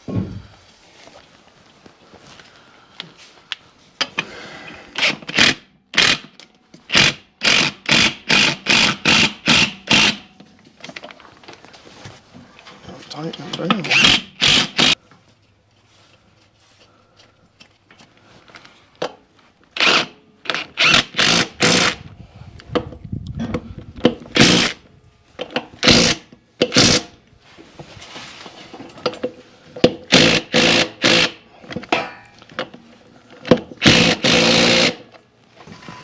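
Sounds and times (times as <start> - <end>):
power tool running lug nuts: 4.9 - 6.3, 6.9 - 10.3, 13.8 - 15.0, 19.8 - 22.0, 24.3 - 24.8, 25.8 - 27.1, 30.1 - 31.4, 33.4 - 35.1.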